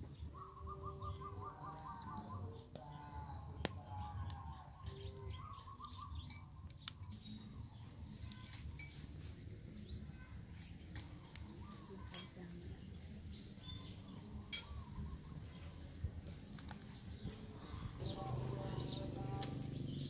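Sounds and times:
bird trill: 0:00.0 - 0:07.5
birds chirping: 0:00.0 - 0:20.0
wood fire crackling: 0:00.0 - 0:20.0.

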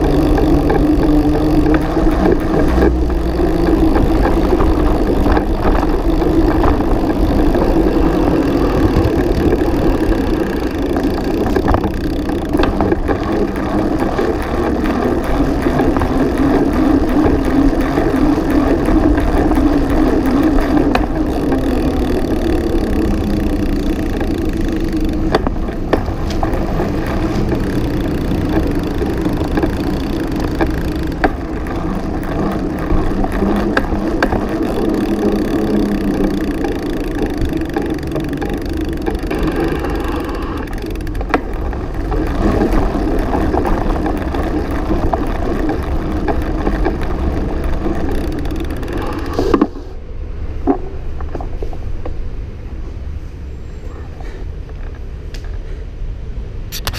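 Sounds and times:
bicycle tyres and drivetrain rumble: 0:00.0 - 0:56.9.

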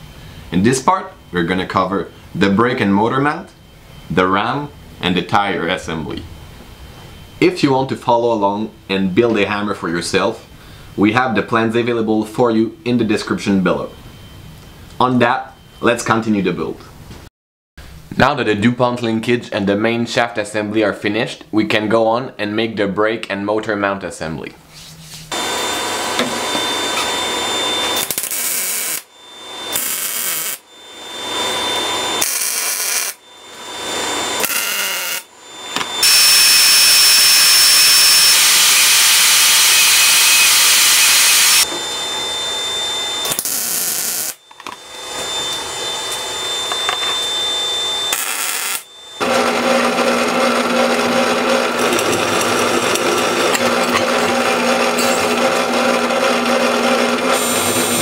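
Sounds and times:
band saw cutting steel plate: 0:25.3 - 0:41.9, 0:43.2 - 0:44.4, 0:45.1 - 0:58.0
power tools working steel: 0:25.3 - 0:58.0
drill press running: 0:46.2 - 0:58.0.

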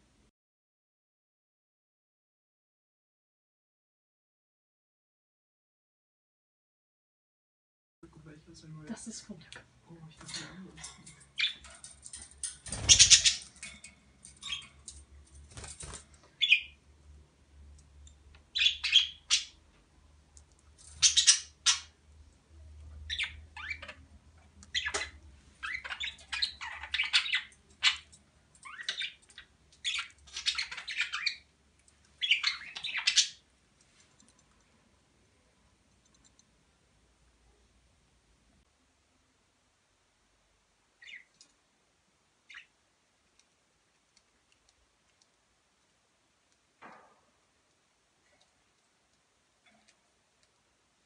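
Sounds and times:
budgerigars chirping: 0:11.4 - 0:11.7, 0:12.7 - 0:13.5, 0:14.4 - 0:14.8, 0:16.4 - 0:16.8, 0:18.5 - 0:19.6, 0:21.0 - 0:22.0, 0:23.0 - 0:24.0, 0:24.7 - 0:31.5, 0:32.2 - 0:33.4, 0:41.0 - 0:41.3, 0:42.5 - 0:42.7.

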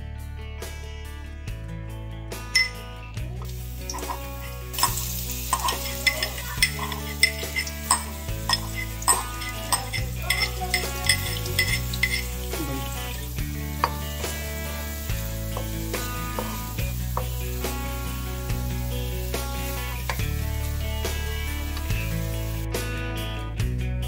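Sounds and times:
wooden spatula scraping wok: 0:03.4 - 0:17.8
garlic sizzling in hot oil: 0:03.4 - 0:22.8.

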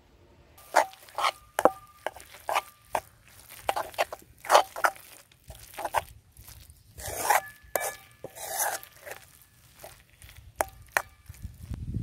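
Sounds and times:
metal spoon scraping a wok: 0:00.6 - 0:11.5
spoon clinking on pan: 0:07.2 - 0:09.2.

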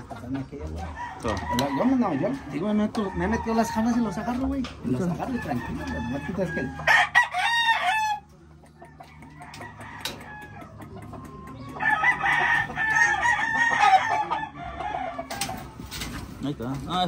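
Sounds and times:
rooster crowing: 0:05.2 - 0:08.3, 0:11.8 - 0:15.6.

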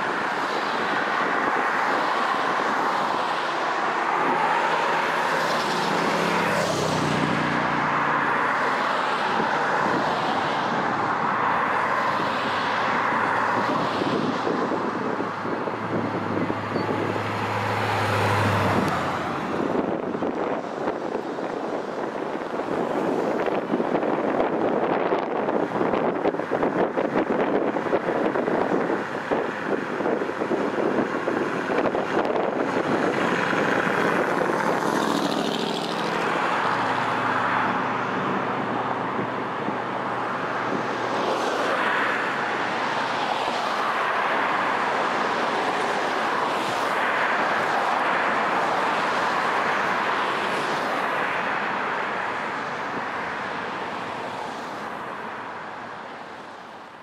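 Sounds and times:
cars driving along road: 0:00.0 - 0:57.0.

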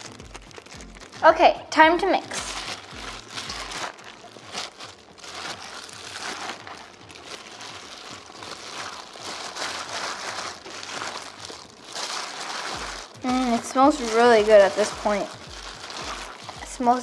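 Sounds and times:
plastic gloves crinkling: 0:00.0 - 0:17.0.

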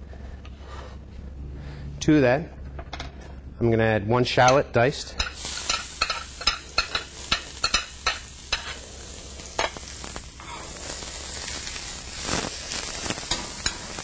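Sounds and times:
shallot sizzling in oil: 0:05.2 - 0:14.0.

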